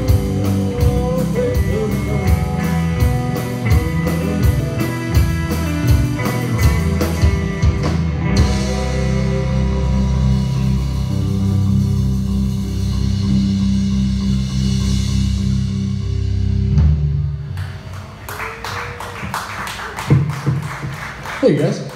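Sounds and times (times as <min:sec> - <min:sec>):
drum kit beat: 0:00.0 - 0:17.3, 0:19.9 - 0:21.3
guitars ringing held notes: 0:00.0 - 0:17.5
live rock band: 0:00.0 - 0:21.9.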